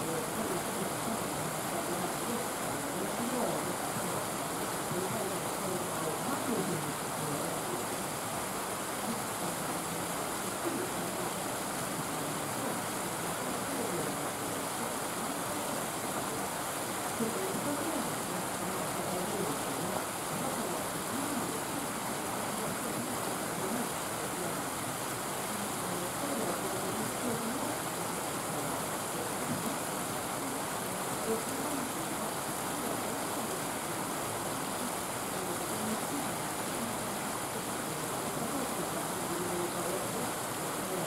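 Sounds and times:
faint murmur of voices: 0:00.0 - 0:41.0.

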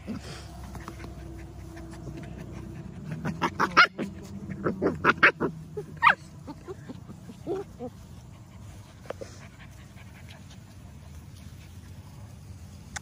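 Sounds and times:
puppy whining: 0:01.0 - 0:08.0
puppy yipping: 0:03.4 - 0:06.3.

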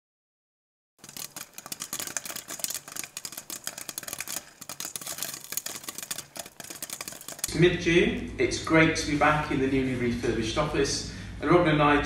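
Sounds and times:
fingers typing on laptop keyboard: 0:01.0 - 0:07.5.

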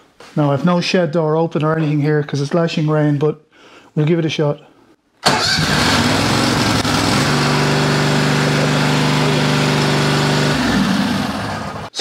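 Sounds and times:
mower engine running: 0:05.2 - 0:11.9.

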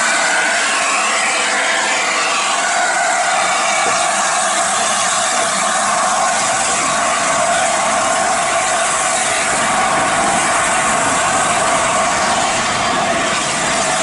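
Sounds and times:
steam locomotive hissing steam: 0:00.0 - 0:14.0.

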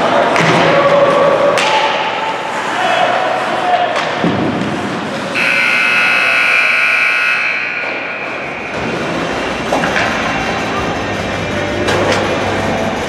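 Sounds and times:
scoreboard buzzer: 0:05.4 - 0:08.8.

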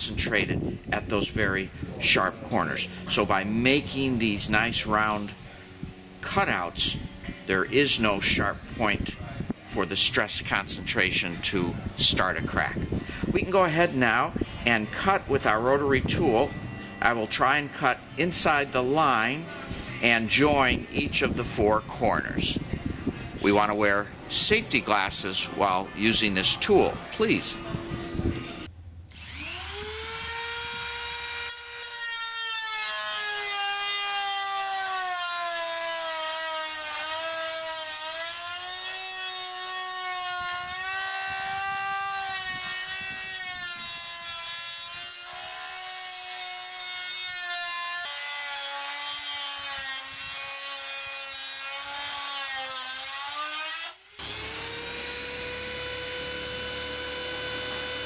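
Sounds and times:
rotary tool cutting metal: 0:29.1 - 0:58.0.

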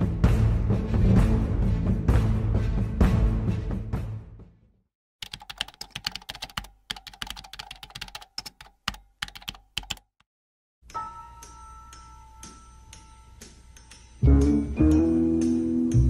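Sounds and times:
music: 0:00.0 - 0:04.9, 0:10.8 - 0:16.0
keyboard typing clicks: 0:05.2 - 0:10.2.

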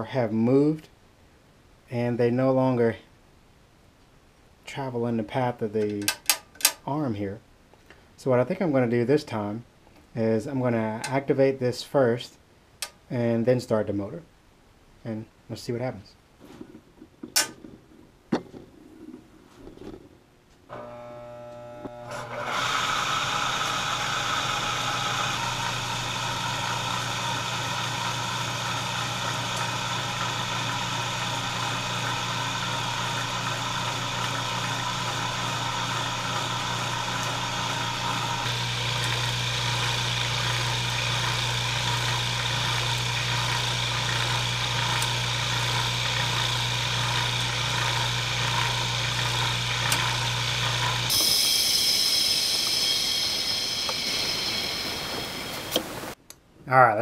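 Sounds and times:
electric motor hum: 0:20.7 - 0:56.2
high motor whir: 0:20.7 - 0:56.2.

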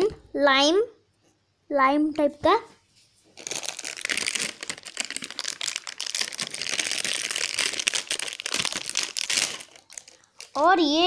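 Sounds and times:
plastic packaging crinkling: 0:03.2 - 0:10.9.

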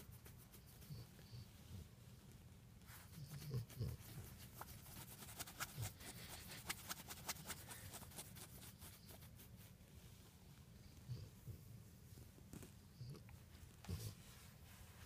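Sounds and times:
fingernails scratching dog fur: 0:02.9 - 0:09.7.

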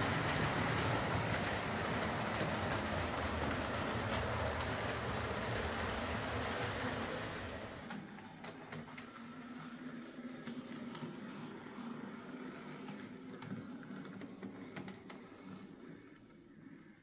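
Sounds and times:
model train wheels rumbling: 0:00.0 - 0:09.1
model train mechanism hum: 0:00.0 - 0:17.0.

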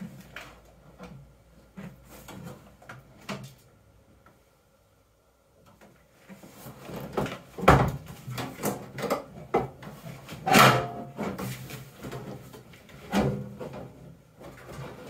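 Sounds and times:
sheet metal knocks and clunks: 0:10.5 - 0:11.2.

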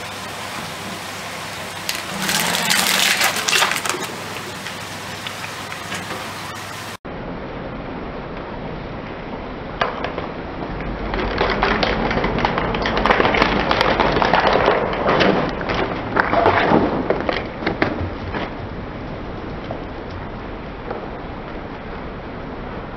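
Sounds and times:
plastic cracking under tyre: 0:01.9 - 0:04.3, 0:10.9 - 0:18.6.

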